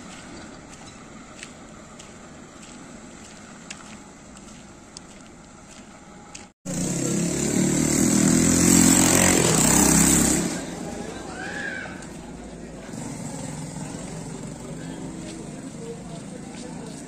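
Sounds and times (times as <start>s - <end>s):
steady outdoor hum: 0.0s - 17.0s
vehicle engine running loudly: 6.7s - 11.2s, 12.2s - 17.0s.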